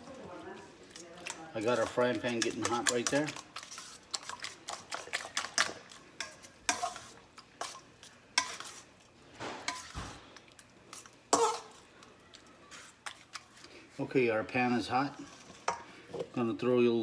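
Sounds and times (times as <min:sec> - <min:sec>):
fork beating eggs in metal bowl: 0:00.8 - 0:09.1, 0:09.7 - 0:14.0.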